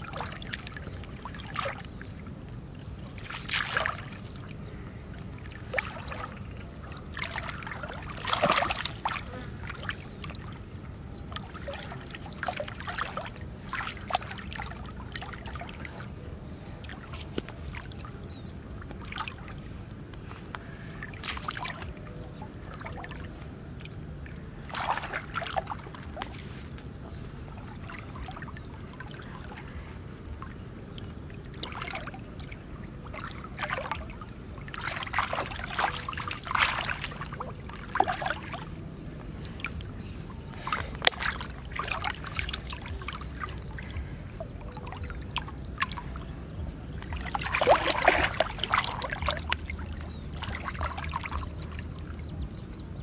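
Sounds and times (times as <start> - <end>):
hands splashing in muddy water: 3.2 - 4.2, 7.2 - 10.0, 21.1 - 21.9, 24.6 - 26.6, 34.7 - 38.6, 40.6 - 44.0, 47.0 - 51.9.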